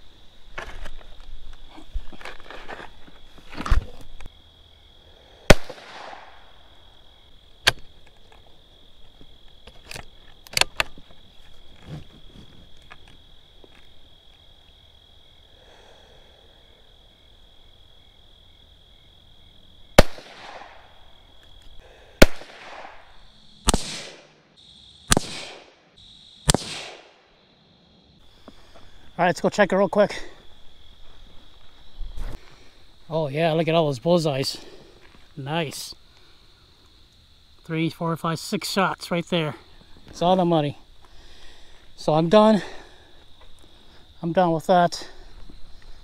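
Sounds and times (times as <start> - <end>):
insects buzzing: 0.0 - 46.0
rifle shots cracking: 5.5 - 6.4, 20.0 - 20.8, 22.2 - 24.4, 25.1 - 25.8, 26.5 - 27.2.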